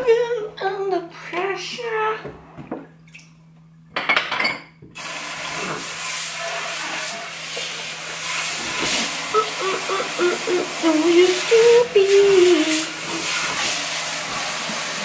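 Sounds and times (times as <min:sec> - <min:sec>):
faucet water spraying into sink: 0:05.0 - 0:15.0.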